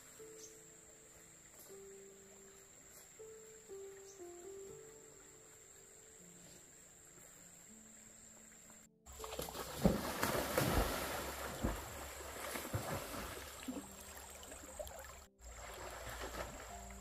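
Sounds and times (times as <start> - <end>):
stream water splashing: 6.8 - 17.0.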